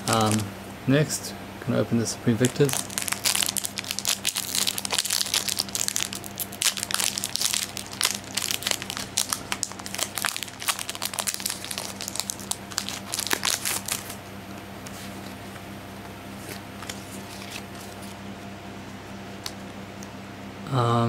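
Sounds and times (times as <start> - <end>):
foil wrapper tearing and crinkling: 0.0 - 0.5, 2.4 - 14.2.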